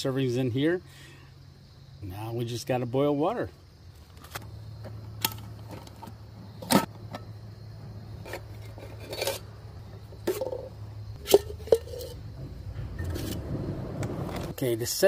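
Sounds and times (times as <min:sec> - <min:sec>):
low hum: 0:06.9 - 0:14.6.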